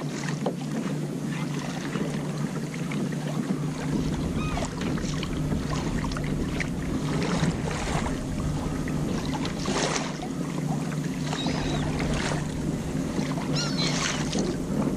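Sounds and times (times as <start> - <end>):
water noise: 0.0 - 14.9
low hum: 2.4 - 14.9
wind noise: 3.4 - 14.9.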